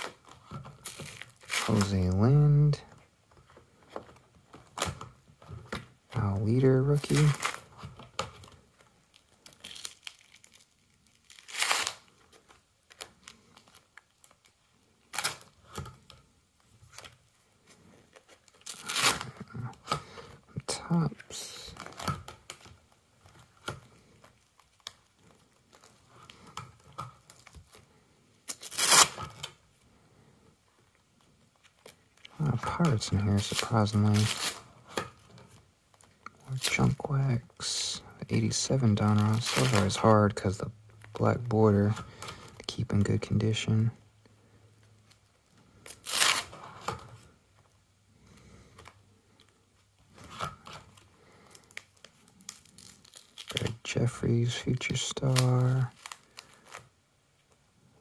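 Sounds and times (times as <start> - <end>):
plastic sheet rustling: 0.0 - 2.8, 31.6 - 35.5, 37.6 - 43.2
soft plastic rustling: 0.0 - 58.0
loud plastic crinkle: 6.9 - 15.8, 18.0 - 20.0, 21.3 - 29.6, 31.6 - 36.8, 38.5 - 40.1, 45.0 - 47.3, 50.1 - 53.8, 55.0 - 57.5.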